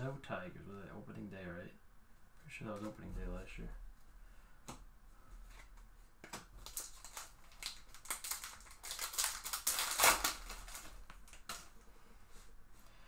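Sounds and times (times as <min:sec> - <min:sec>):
foil wrapper crinkling and tearing: 0:06.6 - 0:11.8.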